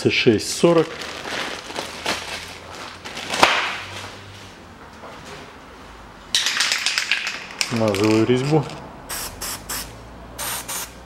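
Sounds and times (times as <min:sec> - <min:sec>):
aerosol can spraying: 0:09.1 - 0:11.0.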